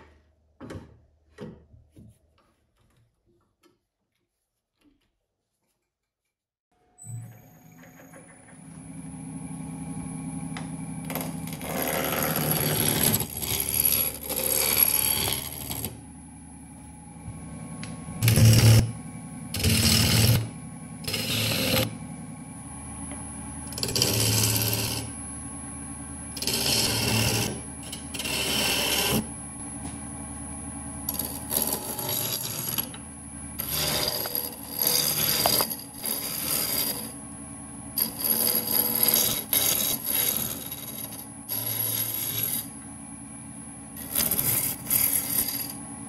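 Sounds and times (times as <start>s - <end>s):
lathe humming: 8.5s - 46.0s
gouge scraping spinning wood: 10.6s - 16.9s, 17.8s - 22.3s, 23.0s - 30.1s, 31.0s - 43.0s, 43.9s - 46.0s.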